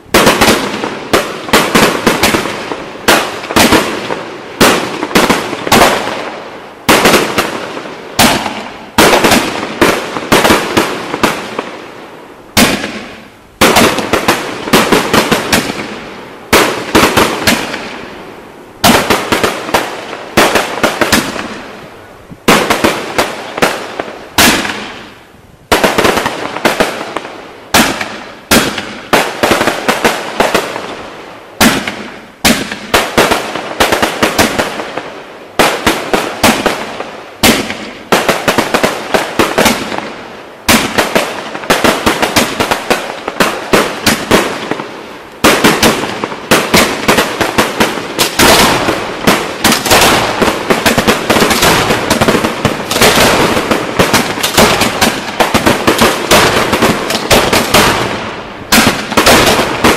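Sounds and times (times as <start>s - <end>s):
firework shell bursts with crackle: 45.4s - 59.9s.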